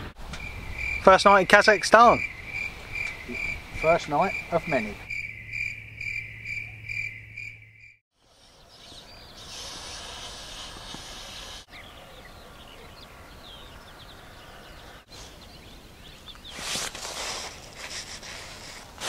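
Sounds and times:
crickets chirping: 0.2 - 8.5
small birds chirping and twittering: 0.2 - 17.6.

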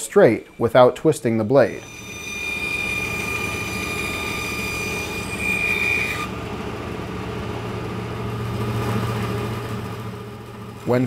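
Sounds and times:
high whine of wood on blade: 0.0 - 10.5
bandsaw running: 1.6 - 10.1.

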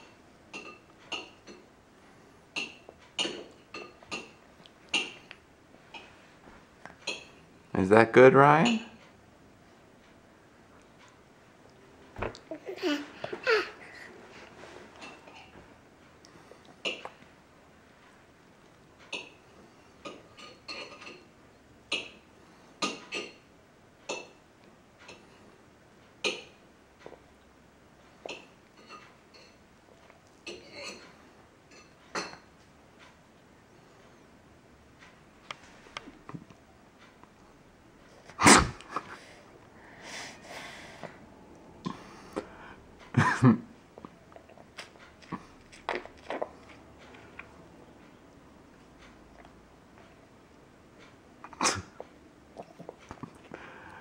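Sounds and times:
baby chewing with wet smacks: 10.8 - 12.6, 16.2 - 17.3, 44.0 - 48.1, 49.0 - 50.2, 51.4 - 53.6
loud cough-like bursts: 38.4 - 39.2, 51.5 - 52.0
soft breathing: 39.0 - 43.0, 53.4 - 54.0.

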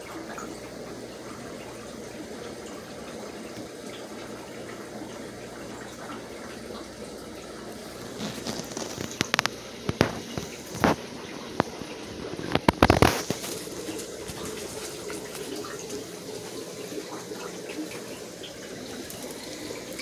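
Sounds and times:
aquarium water rushing: 0.0 - 20.0
sharp clicks and knocks: 8.4 - 11.0.

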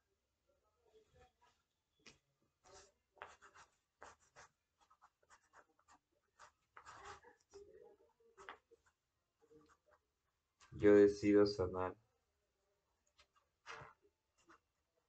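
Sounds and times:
pencil scratching on paper: 2.6 - 7.6, 8.3 - 10.7, 13.2 - 14.8.

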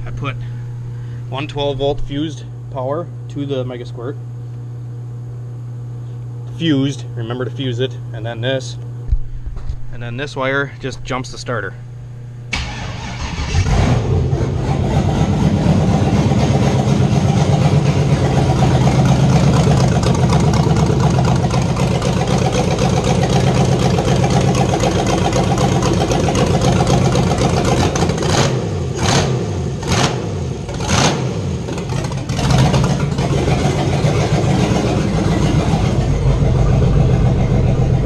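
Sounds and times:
loud engine running unmuffled: 0.0 - 2.6, 6.5 - 38.0
engine starter cranking: 12.5 - 14.0.

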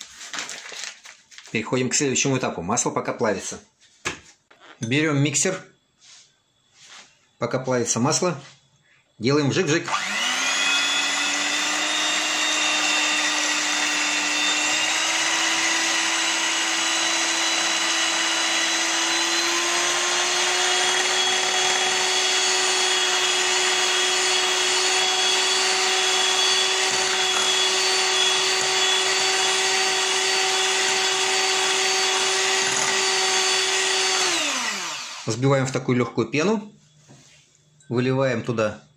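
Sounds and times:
electric hand mixer whine: 9.8 - 35.6.

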